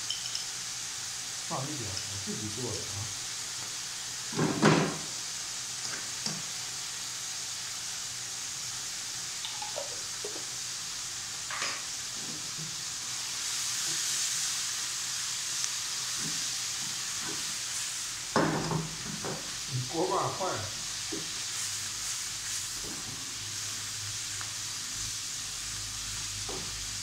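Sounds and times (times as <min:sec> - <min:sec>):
spoon clicking against jar and pan: 0:00.0 - 0:00.5, 0:09.4 - 0:10.0
food sizzling in oil: 0:00.0 - 0:27.0.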